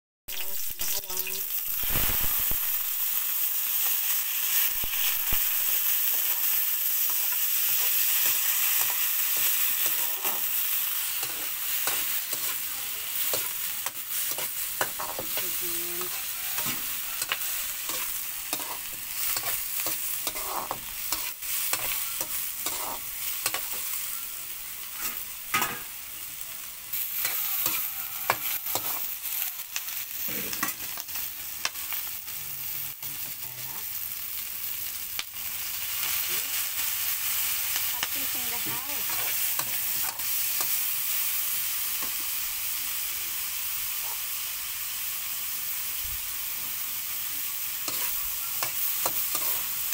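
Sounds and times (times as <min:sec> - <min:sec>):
shrimp sizzling in oil: 0:00.3 - 0:49.9
metal spatula scraping wok: 0:04.6 - 0:24.0, 0:24.9 - 0:25.9, 0:38.3 - 0:40.8, 0:47.8 - 0:49.9.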